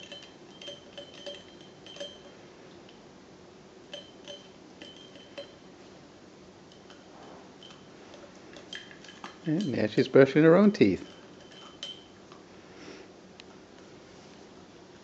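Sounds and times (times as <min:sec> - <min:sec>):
toothbrush clinking against ceramic mug: 0:00.0 - 0:03.0, 0:03.9 - 0:05.7, 0:06.7 - 0:12.2.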